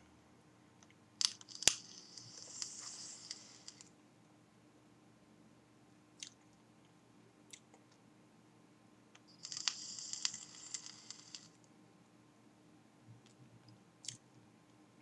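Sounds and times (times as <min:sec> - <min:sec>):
atomizer sizzling and crackling: 0:01.2 - 0:03.9, 0:09.3 - 0:11.7.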